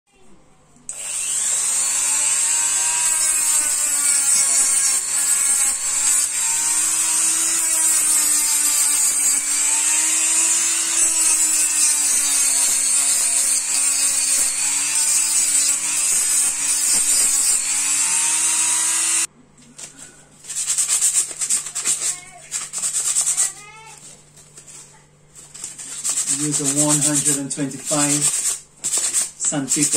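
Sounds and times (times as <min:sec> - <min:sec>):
rotary tool grinding shell: 0:00.9 - 0:19.3, 0:25.5 - 0:29.9.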